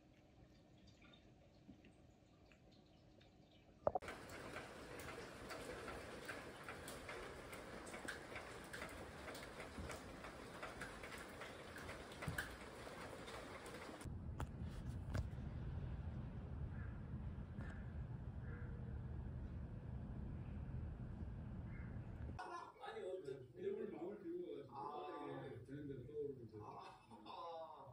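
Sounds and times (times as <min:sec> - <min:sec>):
raindrops ticking: 0:03.9 - 0:14.1
faint rain hiss: 0:04.0 - 0:14.1
low steady rumble: 0:14.0 - 0:22.4.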